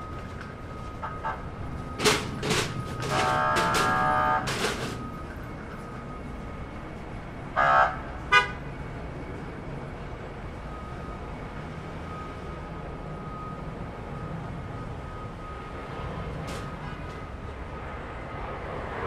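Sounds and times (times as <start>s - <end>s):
warning horn buzzing: 3.0s - 4.8s, 7.5s - 8.7s.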